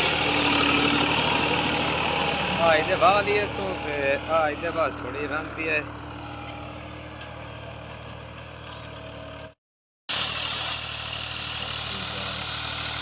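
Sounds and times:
tractor diesel engine under load: 0.0s - 13.0s.

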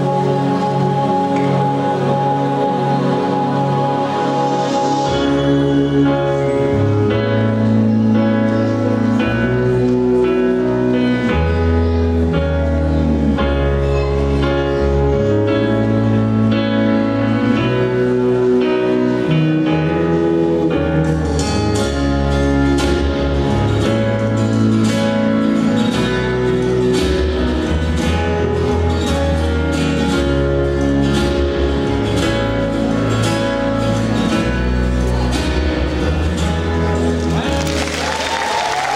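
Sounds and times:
instrumental guitar music with beat: 18.6s - 37.5s.

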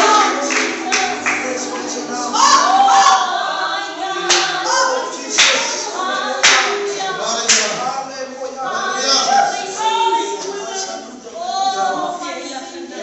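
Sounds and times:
group singing a hymn: 0.0s - 13.0s
sharp hand claps: 0.4s - 2.0s, 4.3s - 4.6s, 5.4s - 5.7s, 6.4s - 6.8s, 7.5s - 7.8s.

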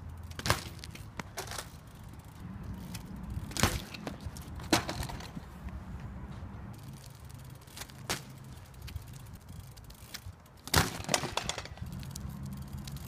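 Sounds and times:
bike clattering on asphalt: 0.0s - 13.0s
bike knock: 3.5s - 5.4s, 10.6s - 11.8s.

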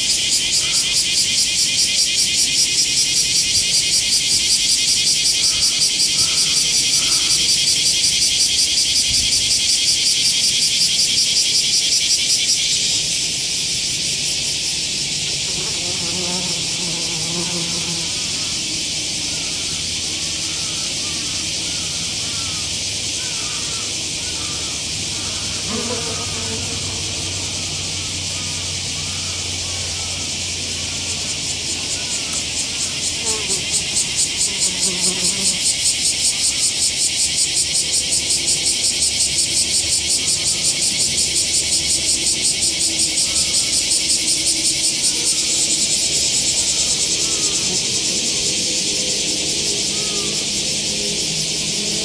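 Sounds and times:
insects shrilling: 0.0s - 52.0s
wasp wings buzzing: 14.9s - 22.6s, 23.2s - 29.3s, 31.0s - 37.8s, 38.4s - 52.0s.

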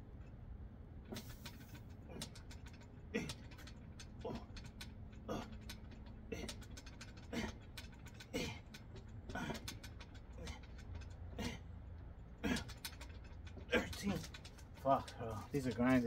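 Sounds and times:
man exhaling hard with grunts: 11.3s - 11.7s, 12.4s - 12.8s.

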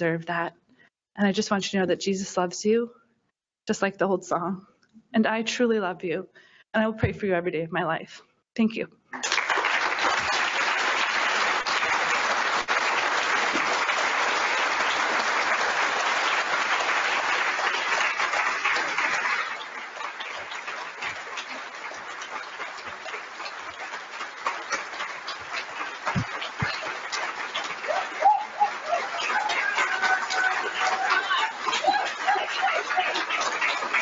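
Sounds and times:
audience applauding: 9.2s - 34.0s.

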